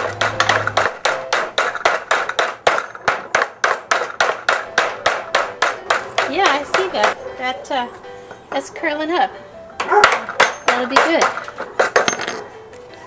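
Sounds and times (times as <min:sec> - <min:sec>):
hammer striking steel sheet: 0:00.0 - 0:07.2.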